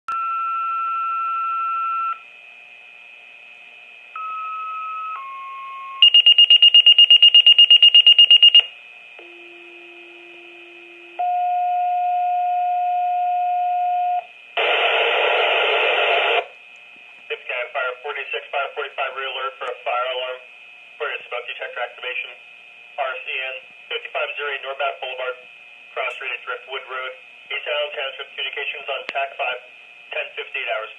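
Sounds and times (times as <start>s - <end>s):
pager tones: 4.2s - 10.1s
fast high beeping alert: 6.0s - 8.6s
radio static: 14.6s - 16.5s.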